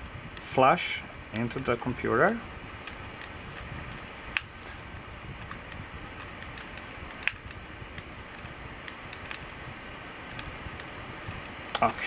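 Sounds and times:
steady low hiss: 0.0 - 12.0
hard drive clicks and taps: 10.2 - 11.9.

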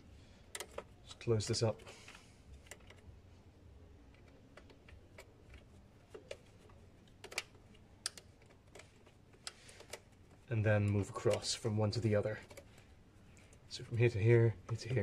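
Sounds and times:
faint clicks and taps: 4.0 - 11.5.

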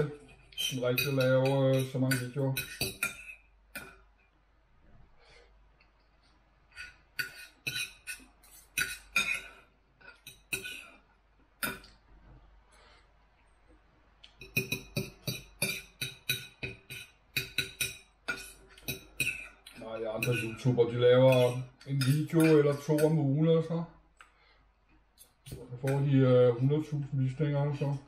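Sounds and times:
cutlery clinking on a plate: 0.6 - 4.0, 14.4 - 23.2.

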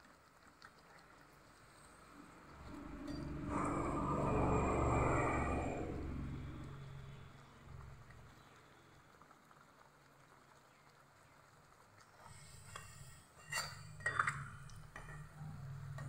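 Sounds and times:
faint oil sizzle: 0.0 - 16.0
metal spoon scraping pan: 12.6 - 16.0.

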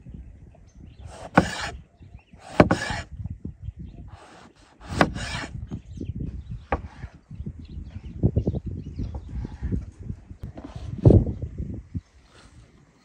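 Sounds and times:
knife slicing produce: 1.1 - 1.8.

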